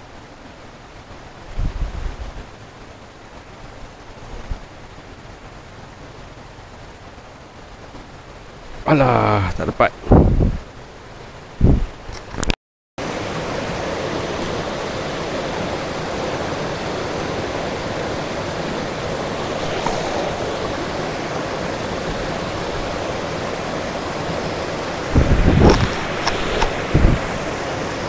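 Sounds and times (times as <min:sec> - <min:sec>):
water rushing over rapids: 0:00.0 - 0:12.4, 0:13.0 - 0:28.0.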